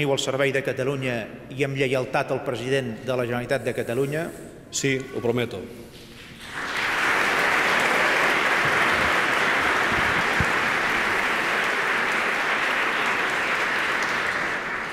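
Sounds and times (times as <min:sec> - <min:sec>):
audience applauding: 0:06.2 - 0:14.9.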